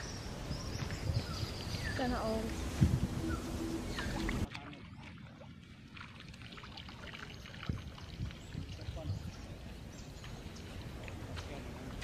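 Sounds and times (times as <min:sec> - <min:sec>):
low wind-like rumble: 0:00.0 - 0:04.5, 0:05.2 - 0:12.0
light water splashes: 0:04.0 - 0:12.0.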